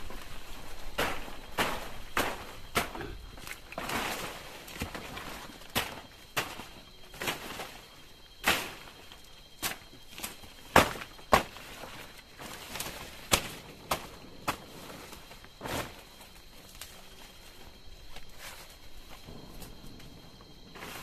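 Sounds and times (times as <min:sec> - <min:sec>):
burning torch crackling: 0:00.0 - 0:21.0.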